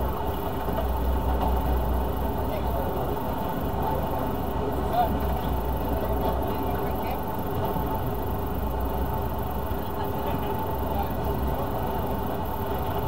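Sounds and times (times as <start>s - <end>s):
boat engine drone: 0.0s - 13.0s.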